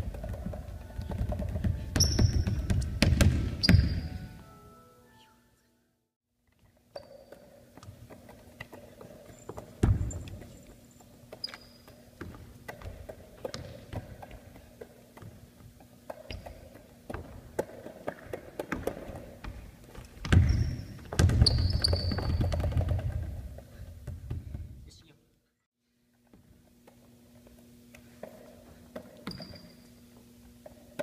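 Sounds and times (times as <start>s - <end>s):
basketball bouncing on wooden floor: 0.0s - 4.2s, 7.0s - 24.8s
sneaker squeaks: 0.9s - 4.3s, 6.9s - 7.6s, 9.0s - 14.4s, 15.7s - 16.9s, 20.2s - 22.8s, 29.0s - 30.2s.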